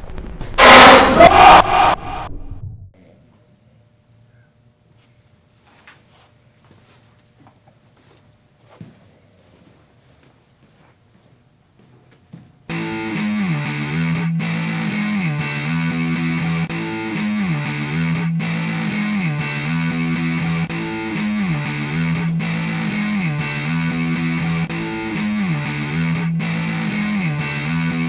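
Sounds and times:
distorted electric guitar riff: 0.6 - 2.3, 12.7 - 28.0.

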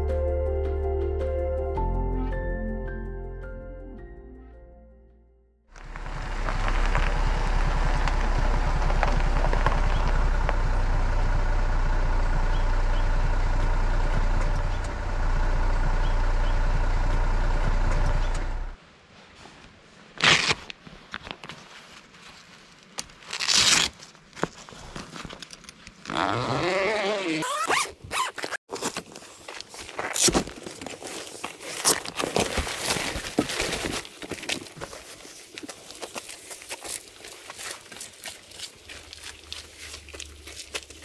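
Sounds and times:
car engine idling: 5.8 - 18.8
velcro straps ripping: 20.2 - 21.4, 23.0 - 24.1, 26.0 - 28.6.

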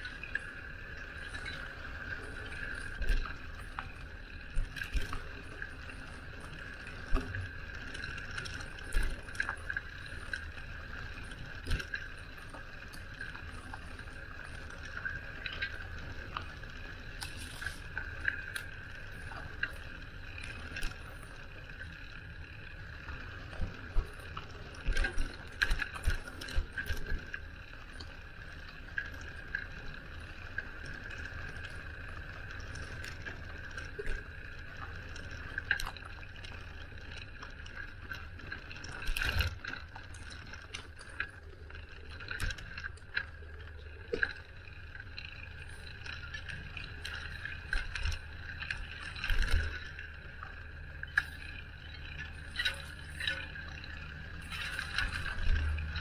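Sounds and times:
wind and tyre rumble: 49.6 - 56.0.

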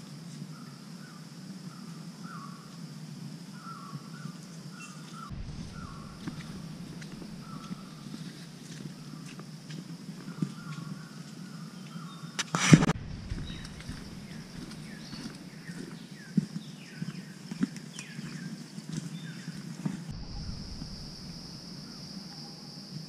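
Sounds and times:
insect drone: 0.0 - 23.0
bird whistling: 4.8 - 8.0
loud rustle: 5.3 - 8.8, 12.4 - 16.0
footsteps on leaf litter: 12.6 - 16.6.

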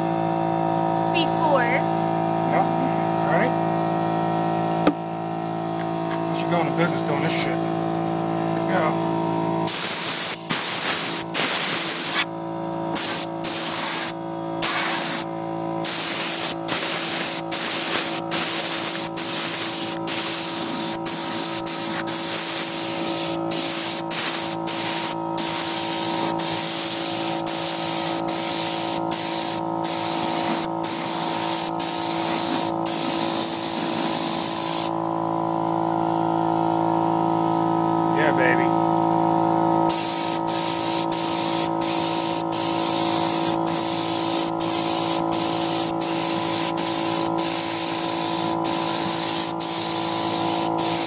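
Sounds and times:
steady hum: 6.4 - 35.1
spray gun hissing: 9.7 - 12.3, 12.9 - 34.9, 39.9 - 51.0.

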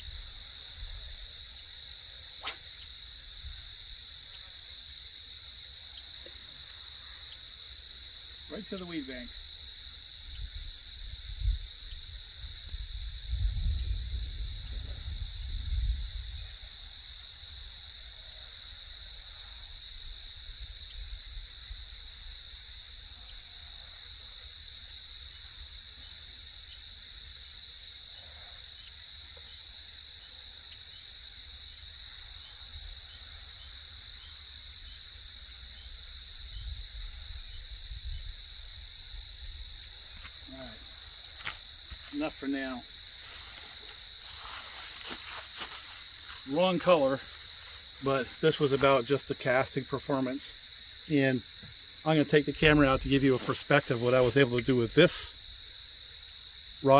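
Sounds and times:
insects trilling: 0.0 - 56.9
pulsing insect chirp: 0.0 - 56.9.

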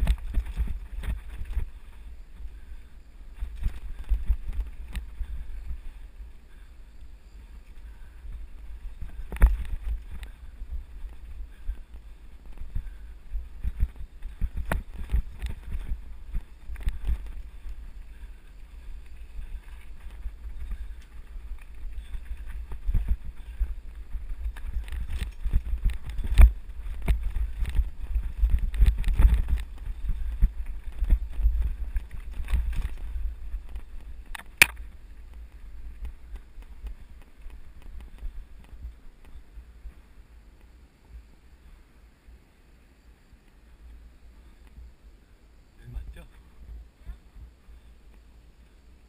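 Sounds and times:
bike rattling and knocking: 0.0 - 2.7, 8.0 - 39.4
wind buffeting microphone: 0.0 - 40.6.

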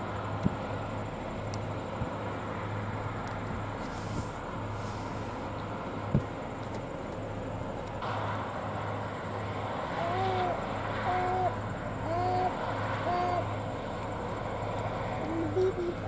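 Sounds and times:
distant farm machinery running: 0.0 - 16.0.

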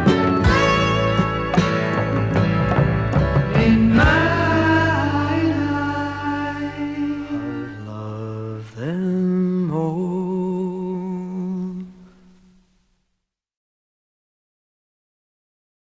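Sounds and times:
pop rock song: 0.0 - 10.5.

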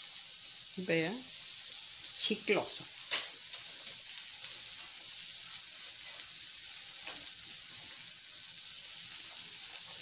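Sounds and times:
food sizzling on a griddle: 0.0 - 10.0.

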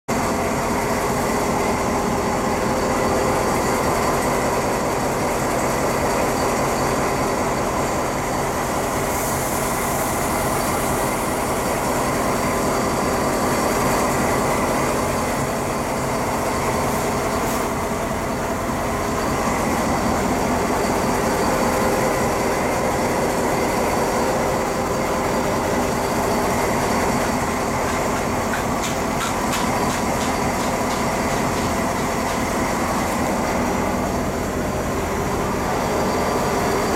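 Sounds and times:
diesel locomotive engine idling: 0.1 - 36.9.

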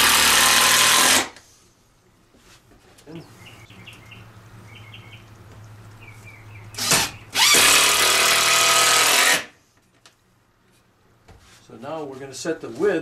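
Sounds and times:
screw gun driving screws: 6.8 - 9.5.

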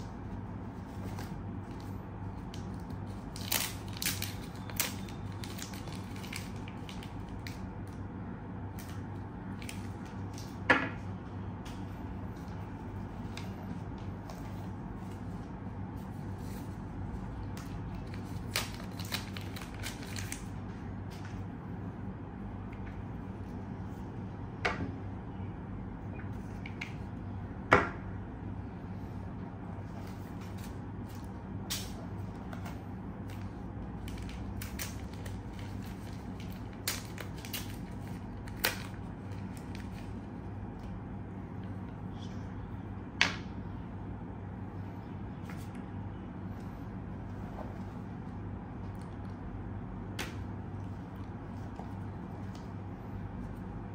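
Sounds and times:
steady low hum: 0.0 - 53.9
packaging rustling and crinkling: 0.8 - 8.0, 16.0 - 20.6, 29.9 - 40.3.

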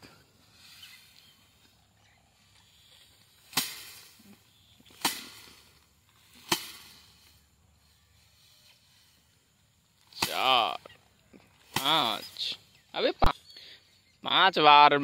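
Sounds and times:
rice stalks thwacking frame: 3.4 - 4.3, 4.9 - 7.3, 10.0 - 10.8, 11.6 - 12.3.

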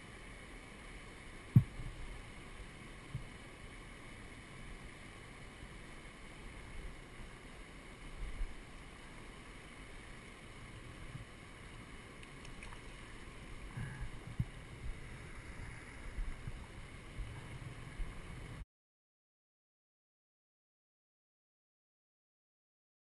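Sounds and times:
river flowing over rocks: 0.0 - 18.6
thumps on microphone: 1.5 - 1.8.

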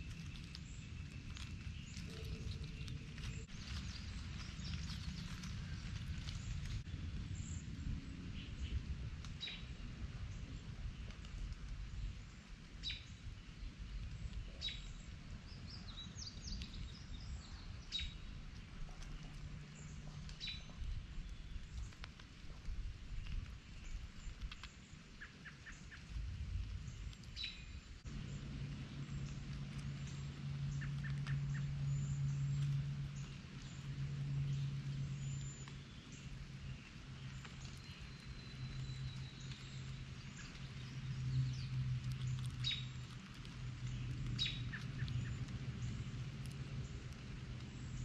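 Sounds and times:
steady low hum: 26.0 - 48.0.

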